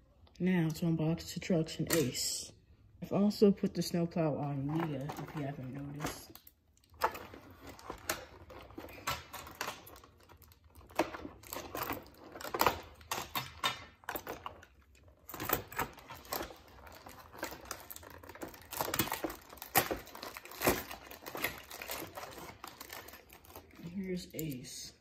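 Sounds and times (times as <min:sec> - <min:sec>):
plastic packaging clicks and crinkles: 0:04.7 - 0:24.8.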